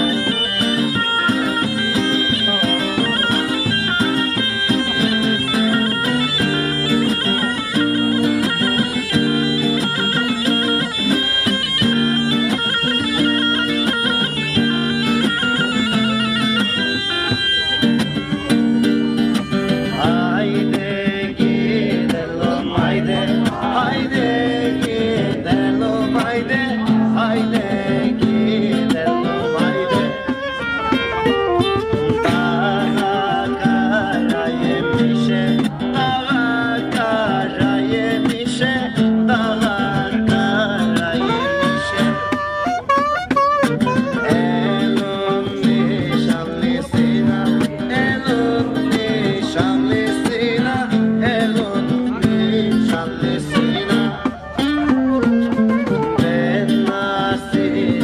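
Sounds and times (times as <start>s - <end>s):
bagpipe melody: 0.0s - 20.5s, 29.1s - 33.6s, 41.1s - 45.9s, 53.8s - 56.2s
strummed acoustic guitar: 0.0s - 58.0s
man singing into microphone: 19.4s - 31.0s, 32.0s - 42.7s, 43.8s - 58.0s.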